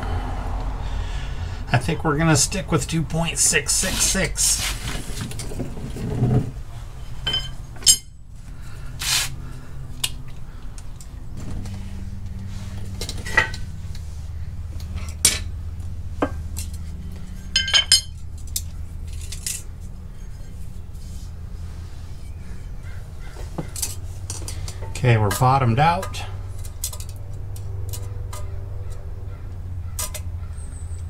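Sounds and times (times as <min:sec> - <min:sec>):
low steady hum: 0:00.0 - 0:31.0
brief hiss: 0:09.0 - 0:09.4.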